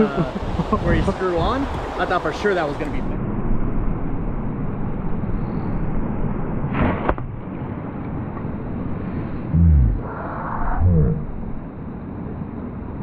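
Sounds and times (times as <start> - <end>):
wind rumble: 2.7 - 13.0
arrow splashing into water: 6.7 - 7.3.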